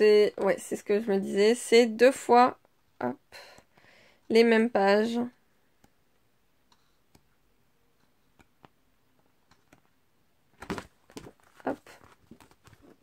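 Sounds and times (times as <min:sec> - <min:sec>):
paper rustling and flapping: 0:10.5 - 0:13.0.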